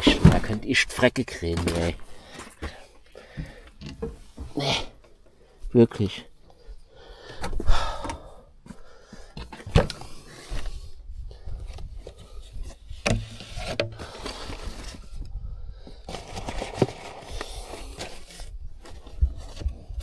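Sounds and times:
rummaging through belongings: 0.0 - 5.3, 11.7 - 15.3, 15.9 - 20.0.

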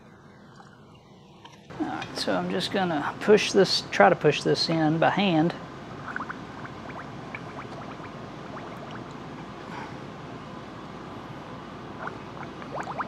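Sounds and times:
air bubbling in fluid: 6.0 - 9.3, 11.9 - 13.0.

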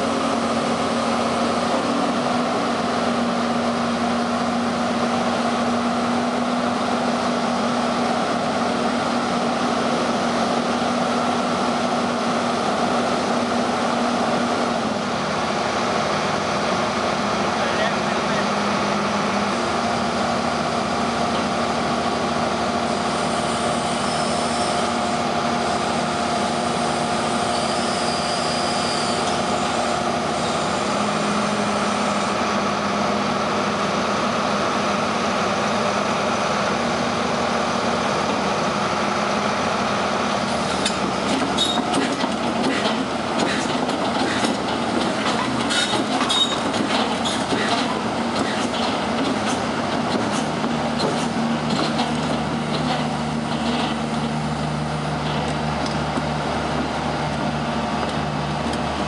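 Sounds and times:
excavator diesel engine with whine: 0.0 - 59.0
metallic clanks and knocks: 40.8 - 54.4.

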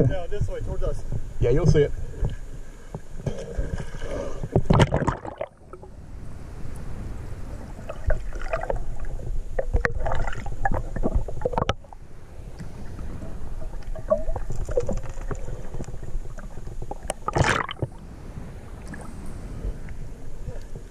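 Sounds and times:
underwater knocks: 2.2 - 5.5, 7.9 - 11.9
underwater bubbles gurgling: 3.2 - 6.0, 7.5 - 20.9
splash into water: 17.3 - 17.9.

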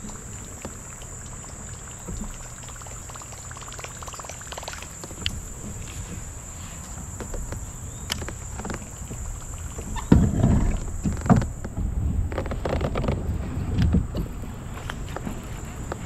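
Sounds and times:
insects droning: 0.0 - 16.0
fishing gear and kayak bumps: 5.0 - 16.0.

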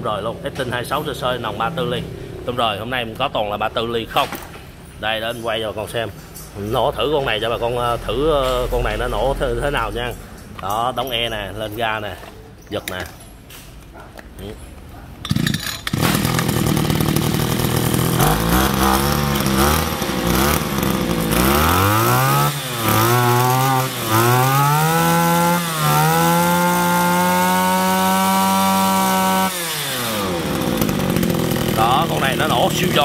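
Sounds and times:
brush cutter engine revving: 15.2 - 33.0.

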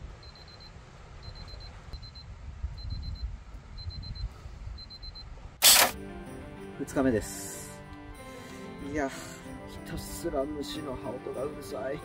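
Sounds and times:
loud burst of noise: 5.6 - 6.0.

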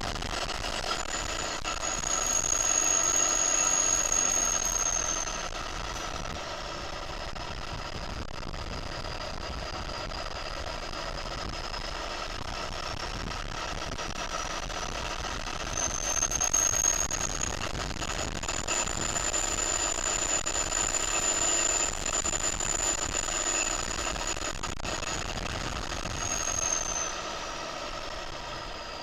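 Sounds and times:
tractor diesel engine running: 0.0 - 29.0
turbo whistle: 0.8 - 6.2, 15.6 - 28.0.

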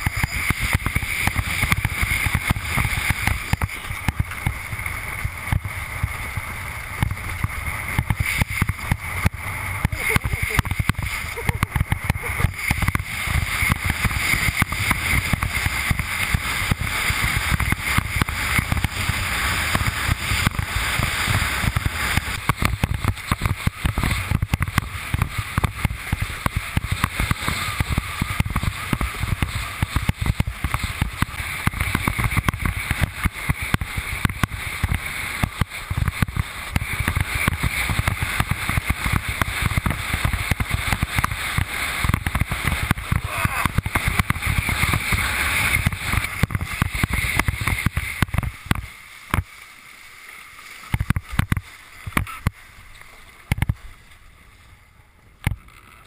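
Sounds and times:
water rushing and splashing: 0.0 - 55.6
spray hissing: 7.2 - 22.2.

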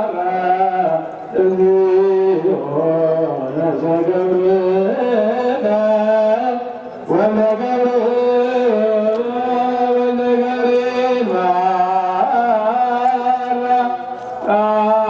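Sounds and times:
prayer chant with long notes: 0.0 - 15.0.

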